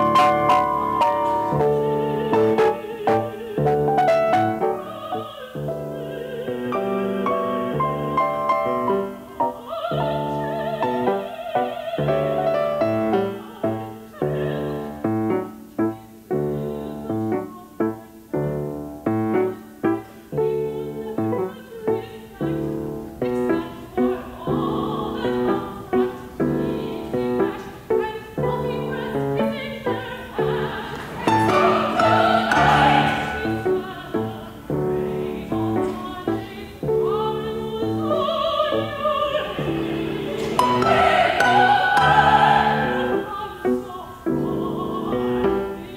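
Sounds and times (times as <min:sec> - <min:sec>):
grand piano: 0:00.0 - 0:45.9
operatic soprano singing: 0:00.0 - 0:45.9.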